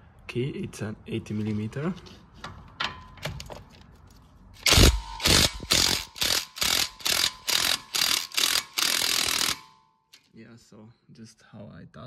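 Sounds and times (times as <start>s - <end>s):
impact wrench hammering: 4.6s - 9.8s.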